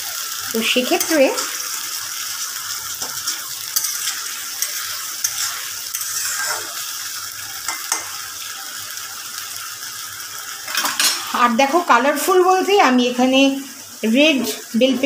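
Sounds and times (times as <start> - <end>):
paste sizzling in oil: 0.0 - 15.0
spoon clicking against pan: 7.7 - 8.1.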